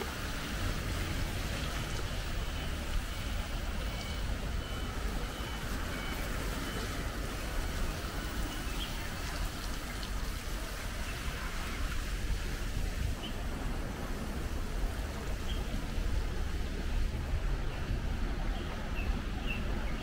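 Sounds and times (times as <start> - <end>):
bicycle riding on wet street: 0.0 - 20.0
faint high electronic beeps: 1.8 - 6.9.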